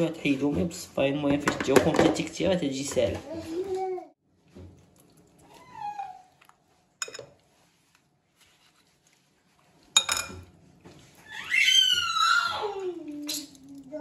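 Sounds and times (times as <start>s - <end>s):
dishes clinking: 7.0s - 7.4s, 9.9s - 11.0s.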